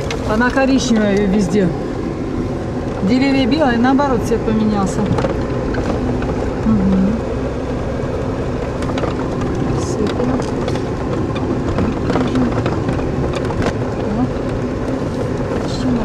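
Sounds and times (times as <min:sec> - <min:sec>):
car engine and tyre noise: 0:00.0 - 0:16.0
knocks and rattles from bumps: 0:04.6 - 0:06.6, 0:08.5 - 0:16.0.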